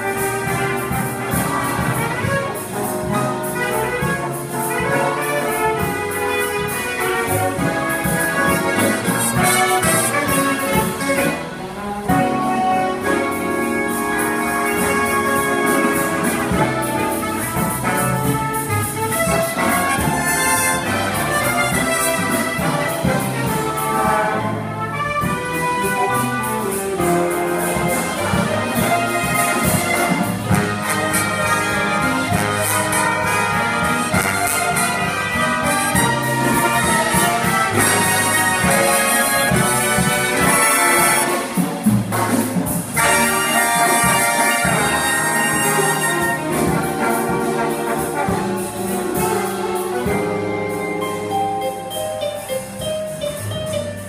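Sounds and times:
jazz big band playing: 0.0 - 54.0.

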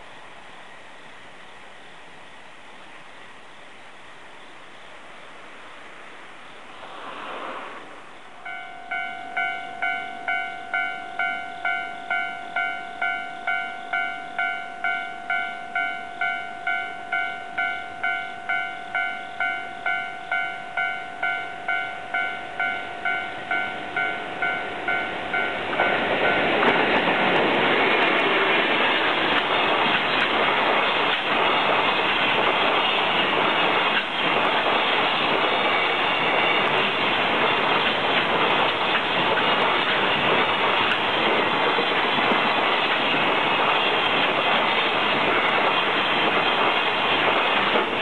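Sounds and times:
train wheels rumbling on rails: 6.7 - 48.0
level-crossing bell ringing: 8.4 - 26.6.

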